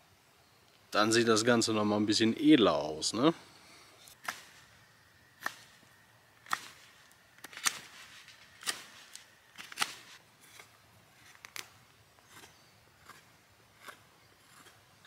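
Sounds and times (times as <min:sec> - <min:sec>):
knife cutting wood: 0:04.1 - 0:04.6, 0:06.4 - 0:14.8
knife scraping wood: 0:12.2 - 0:14.8.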